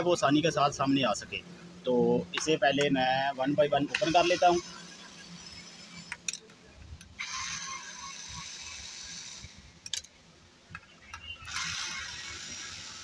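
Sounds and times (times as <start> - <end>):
electric drill motor spinning: 3.9 - 6.4, 7.0 - 9.9, 11.4 - 13.0.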